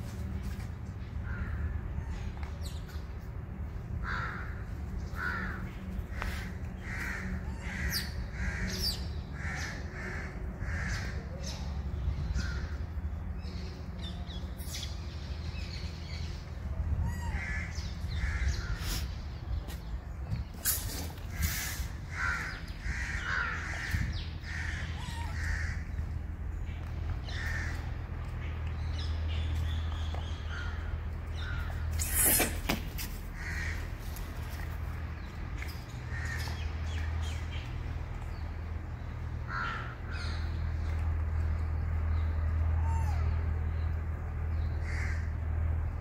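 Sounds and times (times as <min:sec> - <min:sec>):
crows cawing: 0:04.0 - 0:11.2, 0:21.3 - 0:26.0, 0:27.2 - 0:27.9, 0:33.4 - 0:34.0, 0:36.1 - 0:36.6, 0:39.5 - 0:40.4, 0:44.8 - 0:45.3.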